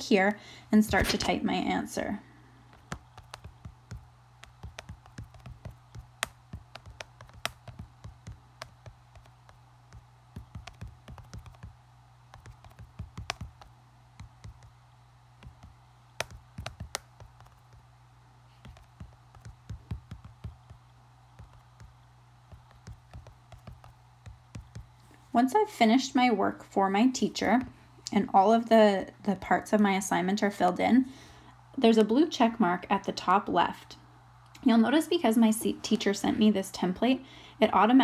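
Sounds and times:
faint low hum: 0:00.0 - 0:38.0
light taps on touchscreen keyboard: 0:02.7 - 0:11.7, 0:12.3 - 0:14.7, 0:15.4 - 0:17.8, 0:18.6 - 0:20.8, 0:21.4 - 0:21.9, 0:22.5 - 0:24.9.

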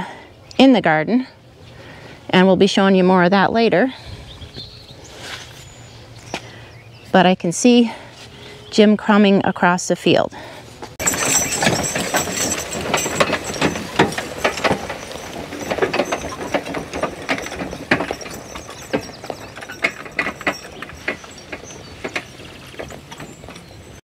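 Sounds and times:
wagon clanking and rattling: 0:10.9 - 0:24.0
horse footfalls: 0:11.0 - 0:24.0.

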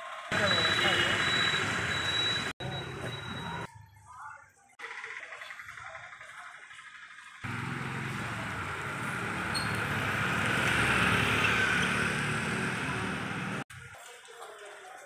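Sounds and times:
vehicle engine humming: 0:00.3 - 0:03.7, 0:06.9 - 0:13.7.

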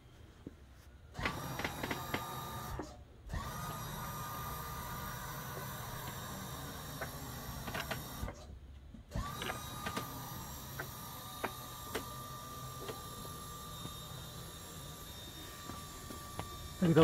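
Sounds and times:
hydraulic pump motor whine: 0:01.1 - 0:08.5, 0:09.1 - 0:17.0.

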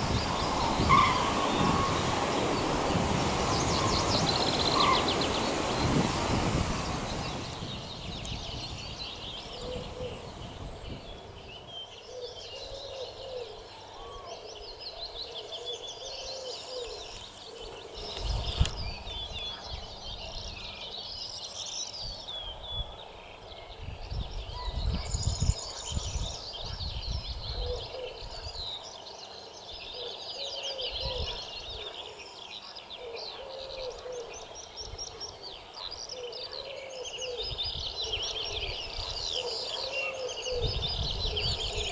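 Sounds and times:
low cooing call: 0:00.0 - 0:07.2, 0:09.4 - 0:11.3, 0:12.1 - 0:14.6
songbirds chirping and trilling: 0:00.0 - 0:41.9.

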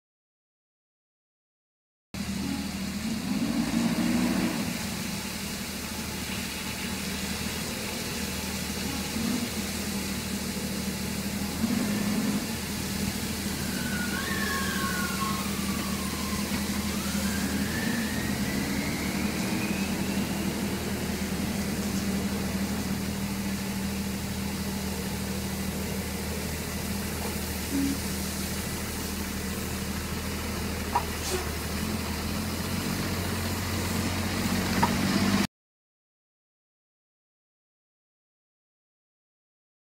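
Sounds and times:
garbage truck engine: 0:02.2 - 0:35.5
water jets spraying: 0:02.7 - 0:35.3
faint whistling tone: 0:13.4 - 0:22.2.

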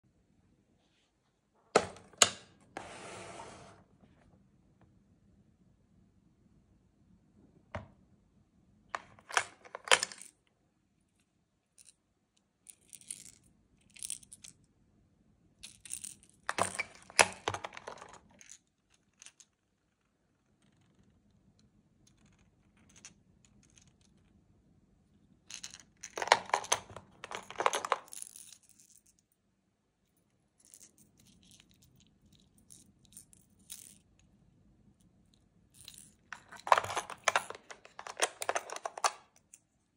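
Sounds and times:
plastic lures clinking in tackle box: 0:26.1 - 0:29.0, 0:35.8 - 0:39.6.

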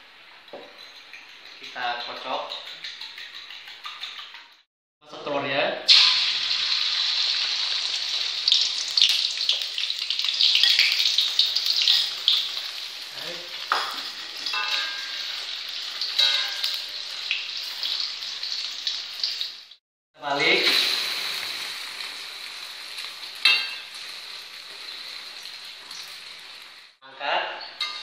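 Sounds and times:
egg sizzling in a wok: 0:05.9 - 0:19.8, 0:20.6 - 0:27.0.

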